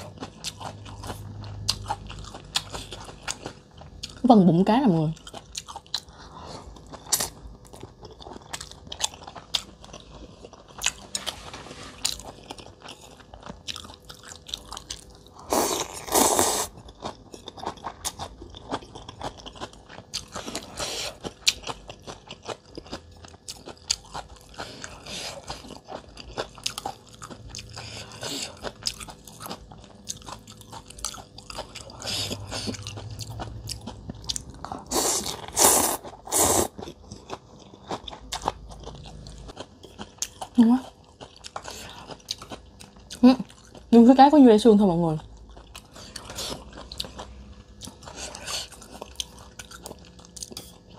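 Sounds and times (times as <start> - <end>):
person chewing and smacking: 0.0 - 4.3, 5.1 - 43.9, 45.2 - 50.9
noodles slurped: 34.7 - 36.8.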